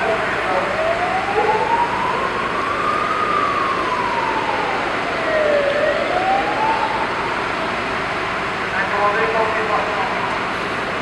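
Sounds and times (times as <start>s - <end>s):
emergency siren wailing: 0.0s - 8.5s
street noise hiss: 0.0s - 11.0s.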